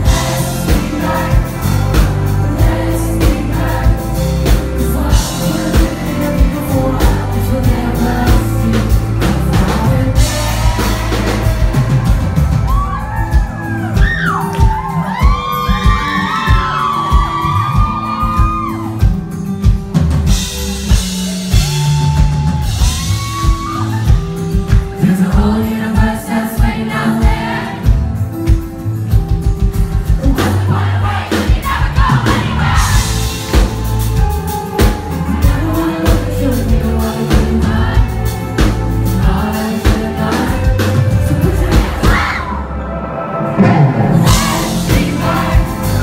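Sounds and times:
man singing lead vocals: 0.0 - 13.0, 24.9 - 28.0, 30.2 - 42.6, 43.6 - 46.0
drum kit steady beat: 0.0 - 42.4, 43.6 - 46.0
acoustic and electric guitars: 0.0 - 46.0
bass guitar: 0.0 - 46.0.

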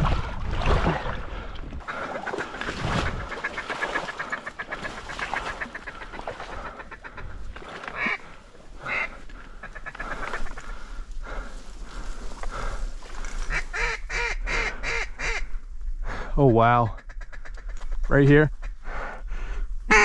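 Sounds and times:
waterfowl clucking: 1.8 - 11.0, 13.4 - 15.5, 17.0 - 17.9
waterfowl honking: 1.8 - 11.0, 13.4 - 15.5.

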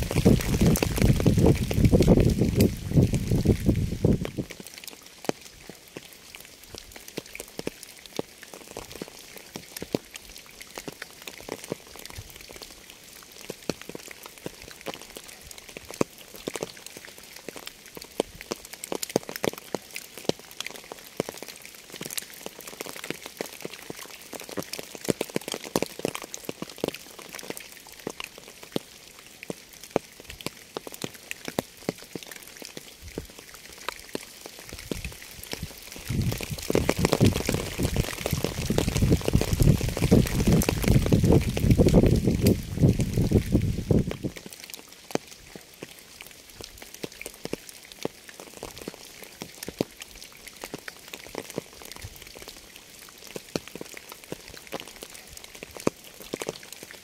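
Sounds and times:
rain hiss: 0.0 - 57.0
raindrops ticking on a surface: 0.0 - 57.0.

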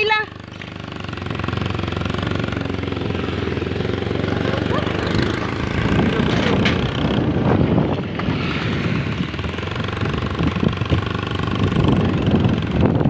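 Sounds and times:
rattling vehicle engine: 0.0 - 13.0
road noise: 0.0 - 13.0.

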